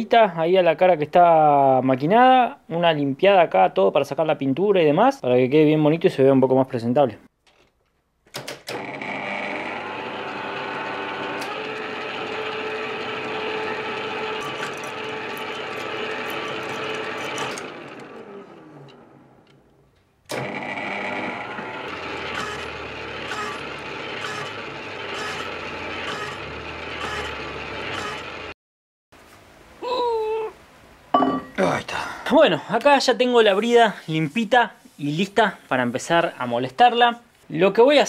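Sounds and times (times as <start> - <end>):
lathe winding down: 8.7 - 19.6, 20.3 - 28.5
metal lathe whirring: 8.8 - 19.1, 20.4 - 28.5.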